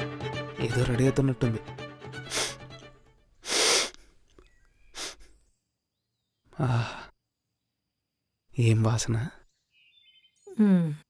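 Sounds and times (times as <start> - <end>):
man sniffing through the nose: 2.2 - 2.7, 3.4 - 4.1, 4.9 - 5.3.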